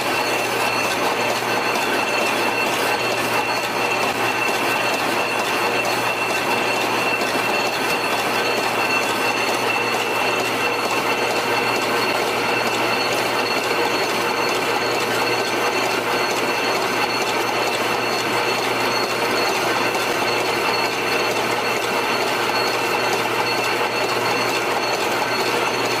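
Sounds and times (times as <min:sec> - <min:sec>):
high machine whine: 0:00.0 - 0:26.0
machine mechanical clatter: 0:00.0 - 0:26.0.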